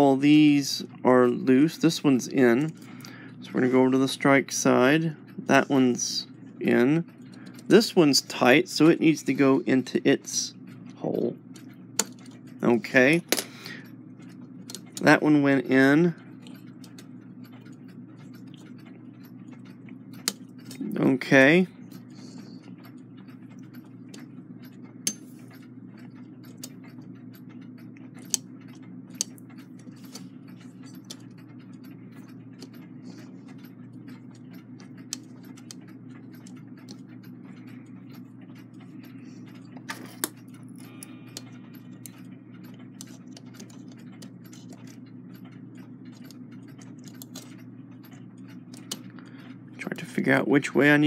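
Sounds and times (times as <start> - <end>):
low background hum: 0.0 - 51.0
small metallic clicks and taps: 21.9 - 50.3.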